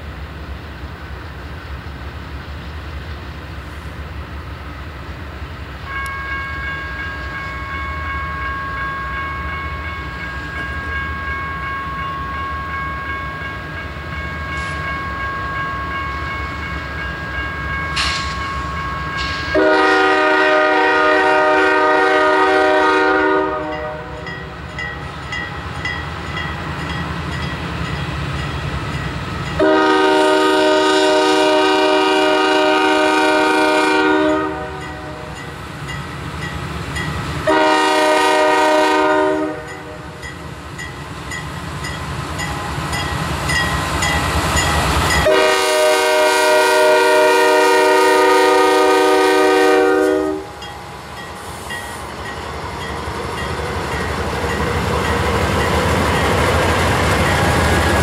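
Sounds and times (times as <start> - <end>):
locomotive engines rumbling: 0.0 - 58.0
train air horn blasts: 19.1 - 24.3, 29.6 - 35.4, 37.4 - 40.2, 45.2 - 50.6.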